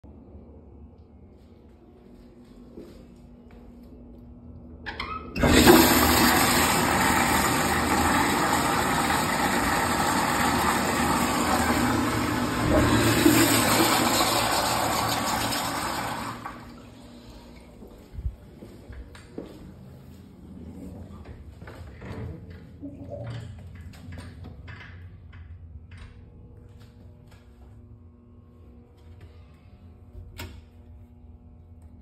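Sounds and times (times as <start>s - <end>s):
urinal flushing water rush: 5.4s - 17.7s.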